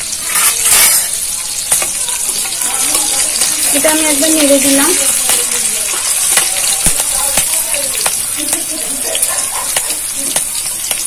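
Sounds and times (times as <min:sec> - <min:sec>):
spices sizzling in hot oil: 0:00.0 - 0:11.0
sharp pops and crackles: 0:04.7 - 0:11.0.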